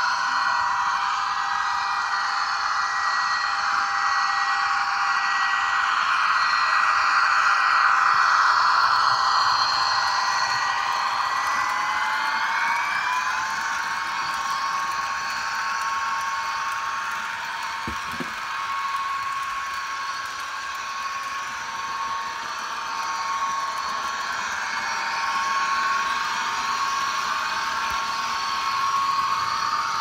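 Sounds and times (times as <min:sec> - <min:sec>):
model train motor whine: 0:00.0 - 0:30.0
wheels rolling on metal track: 0:08.1 - 0:30.0.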